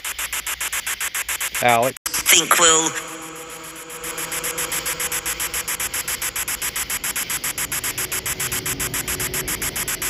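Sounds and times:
pulses of hissing static: 0:02.1 - 0:10.0.

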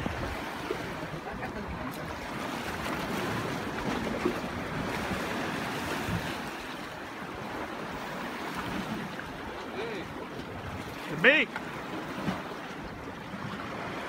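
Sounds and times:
wind on microphone: 0:00.0 - 0:10.9
surf washing against rocks: 0:00.0 - 0:14.0.

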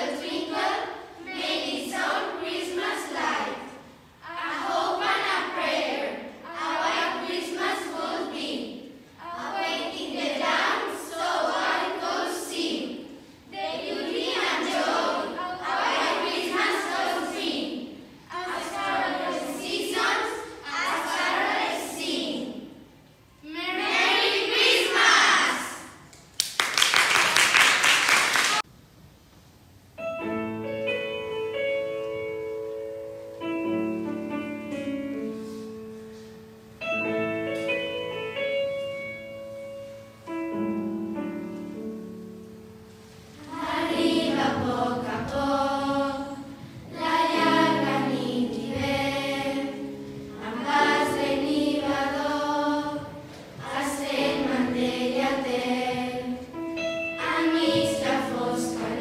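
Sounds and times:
girls choir singing a carol: 0:00.0 - 0:26.1, 0:43.2 - 0:59.0.

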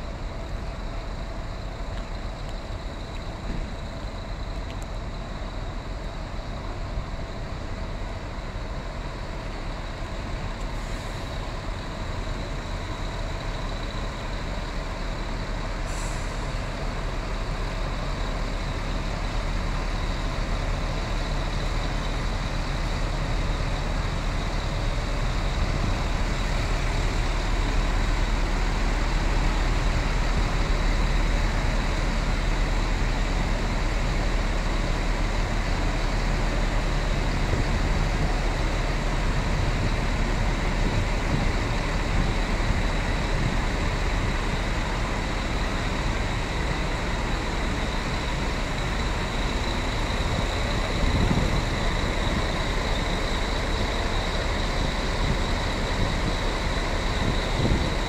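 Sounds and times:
diesel engine idling: 0:00.0 - 0:58.0
brief hiss: 0:15.8 - 0:16.7.

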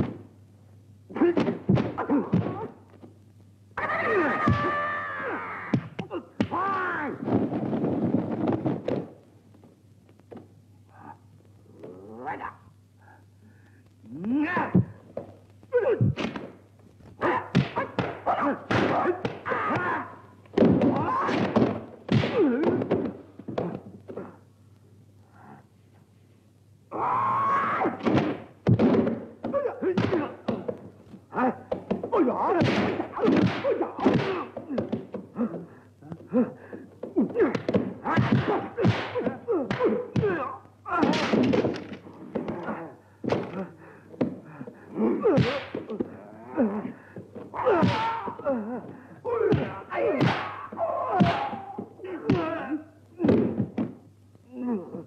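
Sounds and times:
shouted cries and grunts: 0:03.8 - 0:07.2, 0:17.2 - 0:21.6, 0:45.0 - 0:53.4
punch and kick impacts: 0:28.0 - 0:30.8, 0:31.8 - 0:35.1, 0:37.3 - 0:41.8, 0:49.4 - 0:52.6.

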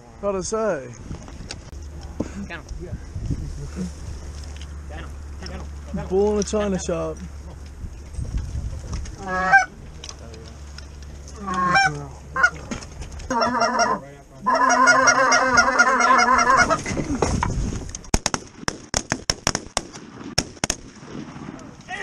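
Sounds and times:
goose call honking and clucking: 0:09.1 - 0:09.8, 0:11.3 - 0:16.9.

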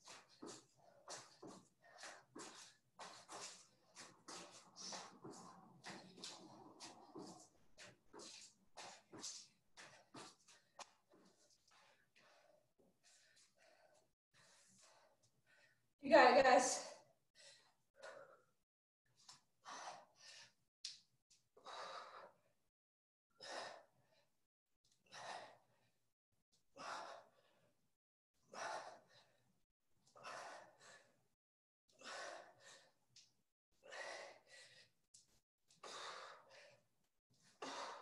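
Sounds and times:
person breathing hard: 0:21.6 - 0:22.6, 0:23.4 - 0:24.3, 0:28.5 - 0:29.4, 0:30.2 - 0:31.2, 0:32.0 - 0:33.0, 0:33.8 - 0:35.0, 0:35.8 - 0:36.9, 0:37.5 - 0:38.0.

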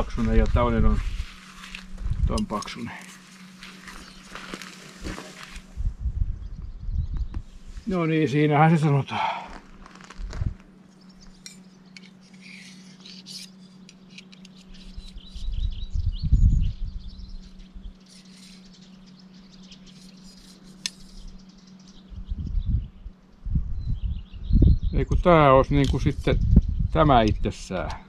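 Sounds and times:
low microphone rumbles: 0:00.0 - 0:02.6, 0:03.9 - 0:08.0, 0:09.2 - 0:10.7, 0:15.2 - 0:17.9, 0:22.1 - 0:27.6
small birds chirping: 0:02.3 - 0:05.5, 0:06.3 - 0:10.2, 0:10.8 - 0:28.0.

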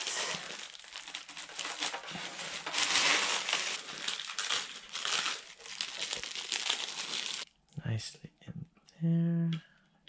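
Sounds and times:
plastic wrap crinkling: 0:00.0 - 0:07.5.

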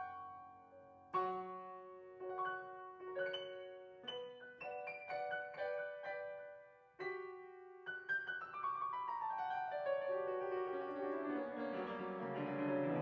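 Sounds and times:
upright piano playing: 0:00.0 - 0:13.0.

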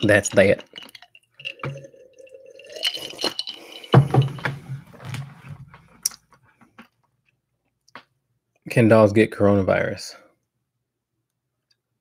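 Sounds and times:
person gulping and swallowing: 0:00.6 - 0:05.0.

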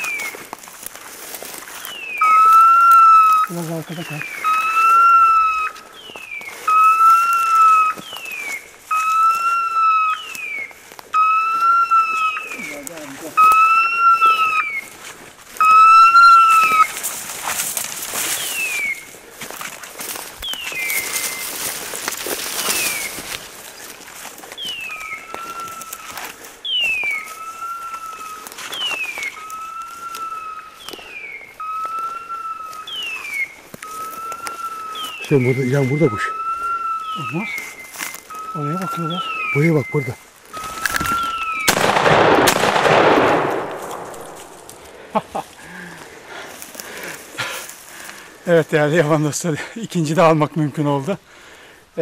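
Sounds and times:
footsteps crackling through brush: 0:00.0 - 0:52.0
beeper collar whistle and tone: 0:01.9 - 0:03.5, 0:04.1 - 0:14.9, 0:15.6 - 0:17.0, 0:31.6 - 0:41.7.

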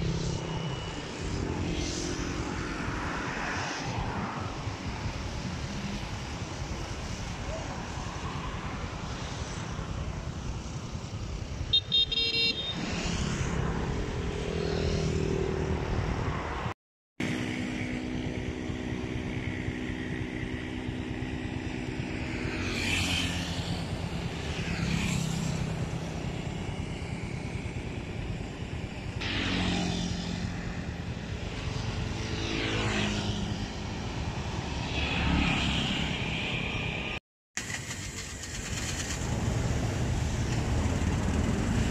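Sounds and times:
trucks driving past: 0:12.2 - 0:41.9.

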